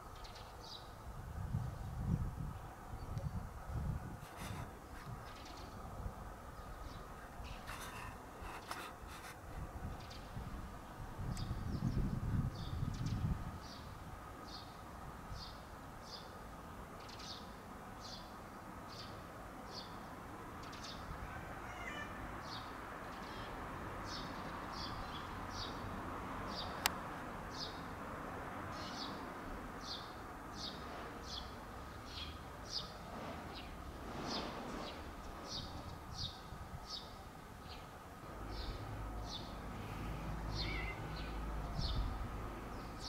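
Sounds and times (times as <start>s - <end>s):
outdoor background noise: 0.0s - 43.0s
small bird chirping: 40.5s - 42.1s.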